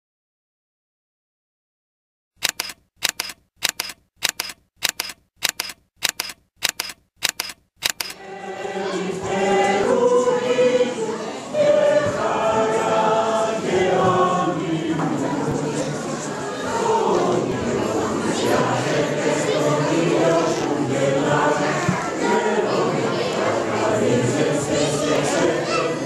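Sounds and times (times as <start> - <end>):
sharp double clicks: 2.4 - 8.2
mixed choir singing: 8.2 - 26.0.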